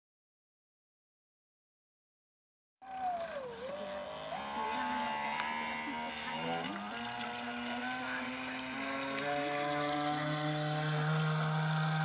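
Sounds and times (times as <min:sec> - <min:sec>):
electric motor whining: 0:02.8 - 0:12.0.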